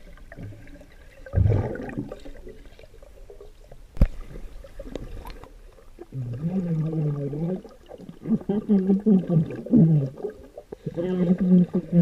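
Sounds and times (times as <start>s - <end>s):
loud low water swirl: 0.0s - 8.5s
underwater gurgling and bubbles: 0.0s - 12.0s.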